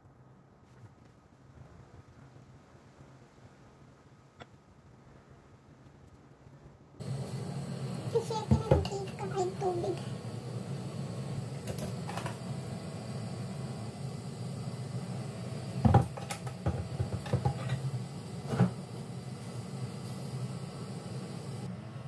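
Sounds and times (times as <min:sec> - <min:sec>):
low hum: 0:07.0 - 0:22.0.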